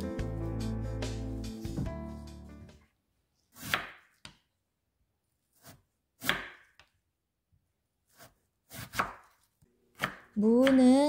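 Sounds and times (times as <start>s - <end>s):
knife cutting onto wooden board: 3.5s - 4.4s, 8.1s - 9.4s.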